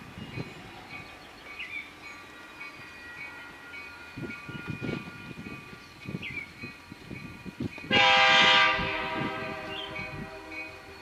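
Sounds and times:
low train rumble: 0.0s - 11.0s
railroad crossing bell ringing: 0.0s - 11.0s
bird chirp: 0.2s - 4.0s.

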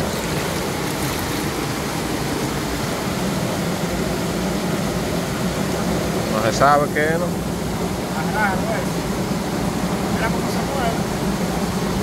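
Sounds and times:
waterfall rushing over rocks: 0.0s - 6.6s.

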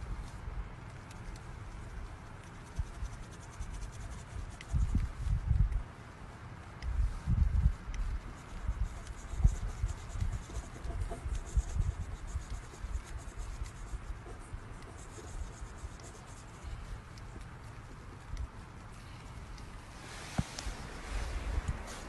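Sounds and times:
marker pen scratching on metal: 8.3s - 19.6s.

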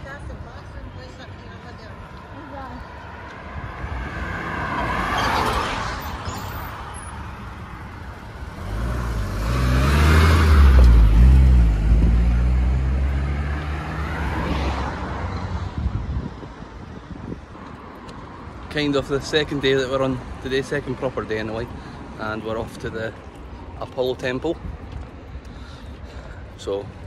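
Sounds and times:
road traffic passing: 0.0s - 27.0s
car passing with low engine note: 1.4s - 22.3s.

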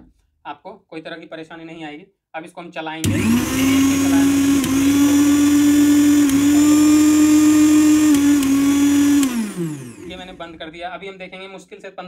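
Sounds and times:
mixer grinder motor whine: 3.0s - 10.7s.

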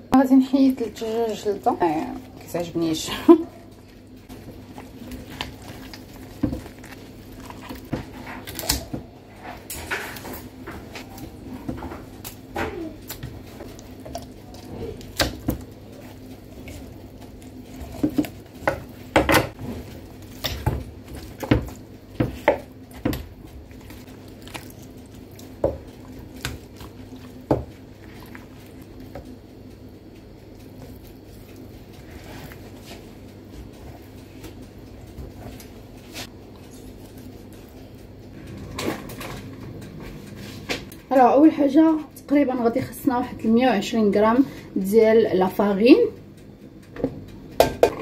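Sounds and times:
steady low hum: 0.0s - 48.0s
soft wet squishing: 0.5s - 8.9s, 10.8s - 19.1s, 19.8s - 38.1s.

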